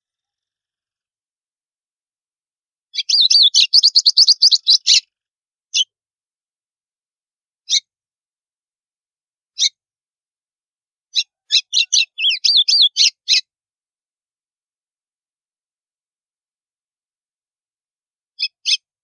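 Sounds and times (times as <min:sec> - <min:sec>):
bird singing sharp notes and whistles: 0:02.9 - 0:05.1, 0:11.1 - 0:13.4.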